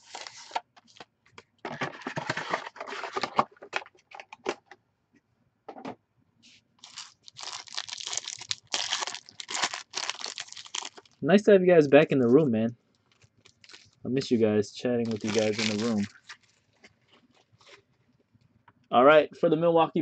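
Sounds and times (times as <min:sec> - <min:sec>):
foil pack crinkling: 0:00.0 - 0:01.0, 0:06.8 - 0:11.2, 0:13.0 - 0:14.0, 0:15.0 - 0:17.9
packaging clicks: 0:06.8 - 0:11.2, 0:15.1 - 0:16.5.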